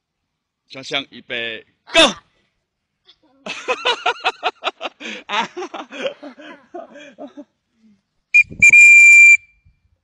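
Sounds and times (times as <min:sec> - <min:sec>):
high-pitched whistle blast: 0:08.4 - 0:09.8.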